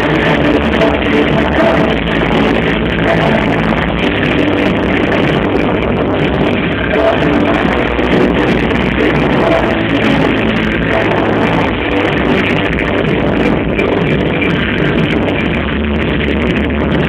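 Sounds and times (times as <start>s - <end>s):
loud music: 0.0s - 17.0s.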